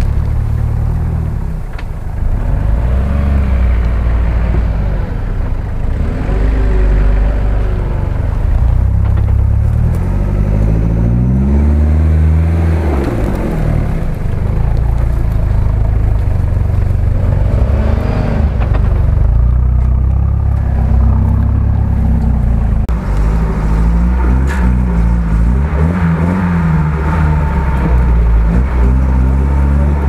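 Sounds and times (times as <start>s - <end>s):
turbocharged engine revving: 0.0s - 30.0s.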